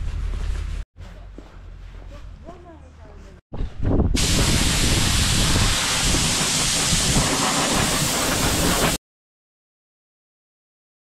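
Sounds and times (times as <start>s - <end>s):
loud rushing noise: 4.2s - 9.0s.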